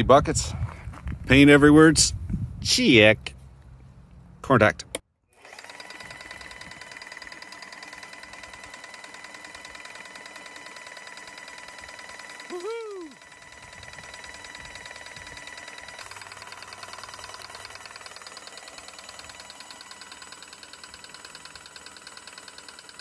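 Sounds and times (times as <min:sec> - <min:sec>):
electric motor whining: 0:05.3 - 0:23.0
pump ticking rapidly: 0:05.4 - 0:23.0.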